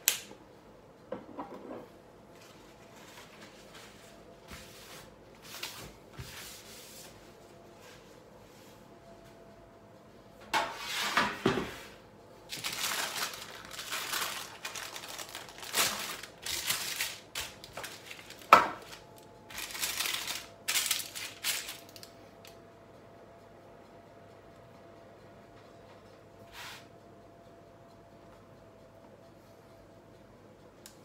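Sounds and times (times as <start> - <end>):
baking parchment rustling and crinkling: 2.4 - 7.2, 10.8 - 22.2.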